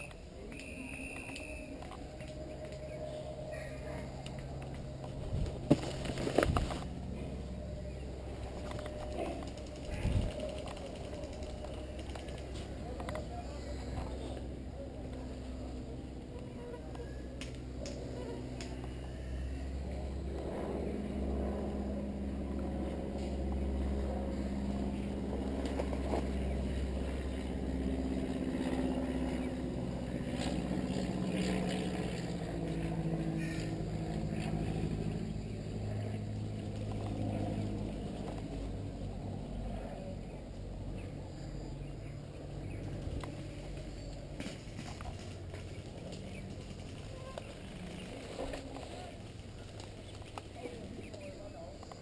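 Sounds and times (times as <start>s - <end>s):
low rumble: 0.0s - 50.6s
engine-like drone: 0.0s - 52.0s
footsteps on dirt trail: 4.7s - 6.9s.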